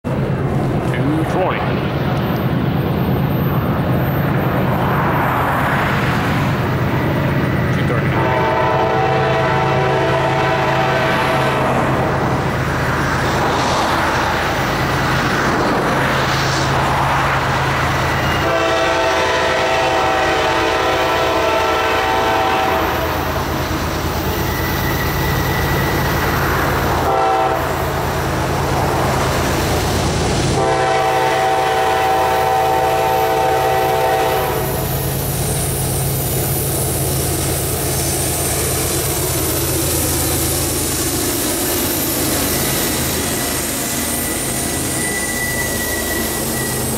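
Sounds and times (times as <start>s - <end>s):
diesel engines droning: 0.0s - 46.9s
train wheel noise: 0.0s - 46.9s
locomotive air horn blasts: 8.2s - 11.6s, 18.4s - 23.1s, 27.0s - 27.9s, 30.5s - 35.0s.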